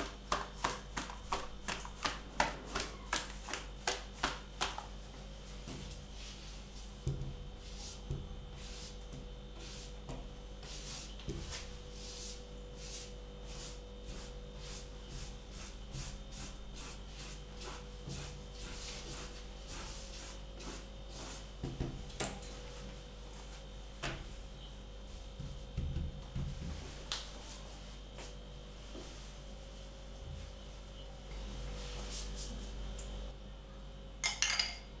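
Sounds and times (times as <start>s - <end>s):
spatula scraping flour on wood: 10.6s - 21.6s.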